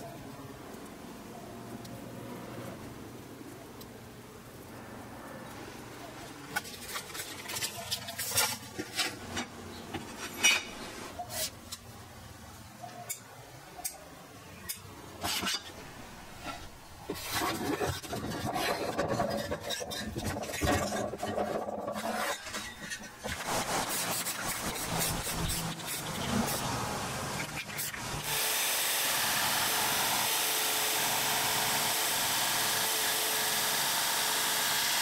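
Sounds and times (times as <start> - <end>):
paper rubbing and rustling: 6.4 - 11.6, 16.4 - 26.7.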